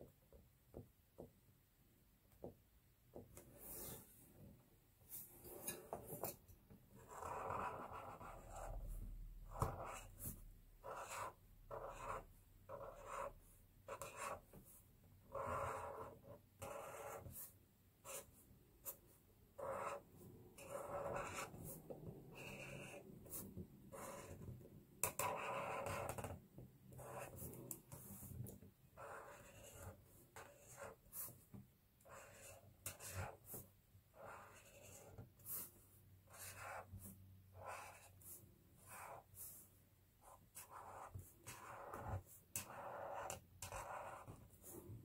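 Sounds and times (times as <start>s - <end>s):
marker strokes on paper: 27.0s - 45.0s.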